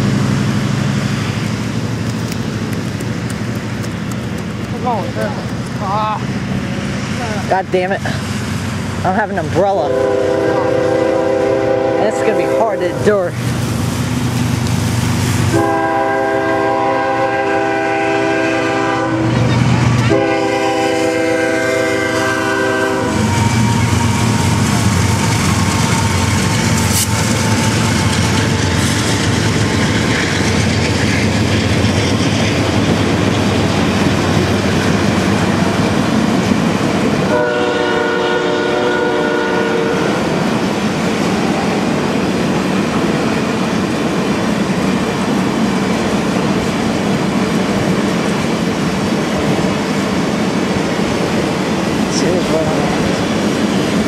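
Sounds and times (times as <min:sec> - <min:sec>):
train wheels rumbling on rails: 0:00.0 - 0:54.0
train horn blasts: 0:09.8 - 0:13.3, 0:15.5 - 0:25.2, 0:37.3 - 0:40.4.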